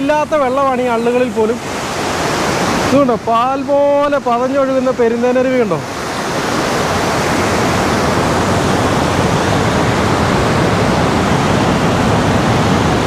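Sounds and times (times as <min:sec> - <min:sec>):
waterfall rushing over rocks: 0:00.0 - 0:13.0.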